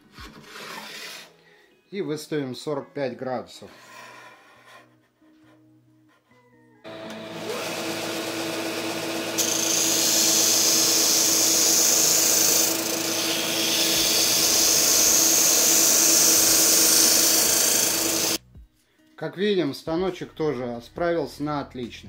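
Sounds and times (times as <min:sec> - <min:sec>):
sander motor humming: 0:06.9 - 0:18.4
hiss of sanding wood: 0:13.2 - 0:18.4.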